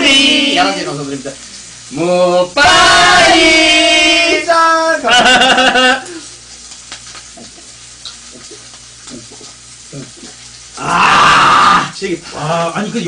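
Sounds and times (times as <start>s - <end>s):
pork sizzling on a grill: 0.0s - 13.0s
men shouting a toast cheer: 10.8s - 12.0s.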